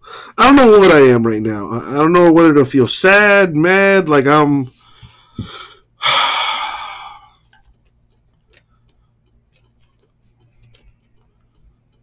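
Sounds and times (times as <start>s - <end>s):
man sighing heavily: 5.0s - 7.3s
cards clicking: 7.4s - 11.6s.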